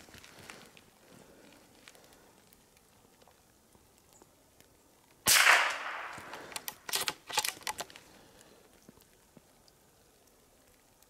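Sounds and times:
rifle shot: 0:05.3 - 0:07.5.

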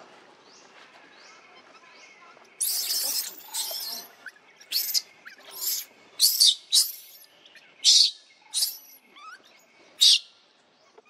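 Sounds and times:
baby monkey screaming: 0:02.6 - 0:07.2, 0:07.8 - 0:09.4.

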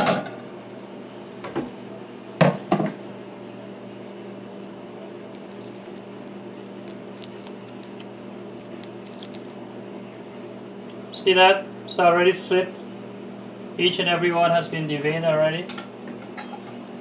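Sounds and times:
steady low hum: 0:00.0 - 0:17.0
shrimp shell crackling: 0:04.0 - 0:09.7.

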